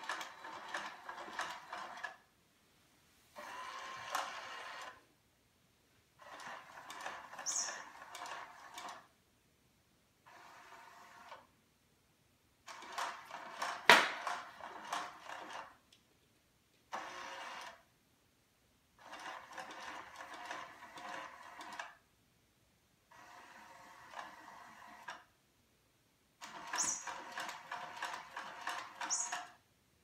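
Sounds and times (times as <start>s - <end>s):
toy mechanism whirring: 0.0s - 2.3s, 3.4s - 5.0s, 6.2s - 9.1s, 10.2s - 11.5s, 12.6s - 15.8s, 16.9s - 17.8s, 19.0s - 22.0s, 23.1s - 25.3s, 26.4s - 29.6s.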